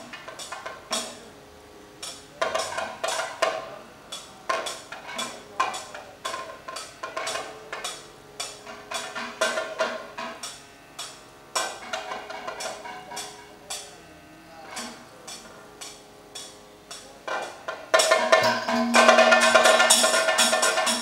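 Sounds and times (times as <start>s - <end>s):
barrel drum played by hand: 0.0s - 1.3s, 17.3s - 21.0s
ringing metallic strikes: 0.0s - 1.3s, 2.0s - 21.0s.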